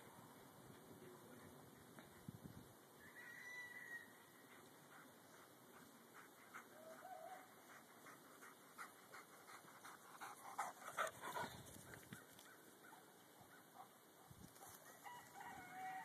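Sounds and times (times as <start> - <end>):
dogs panting: 4.4 - 12.1.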